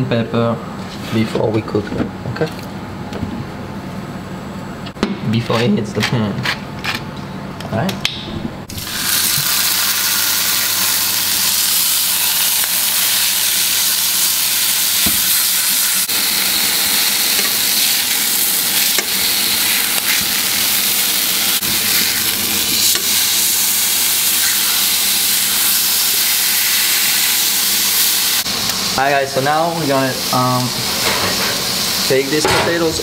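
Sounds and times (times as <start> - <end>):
meat sizzling in a frying pan: 8.7 - 32.4.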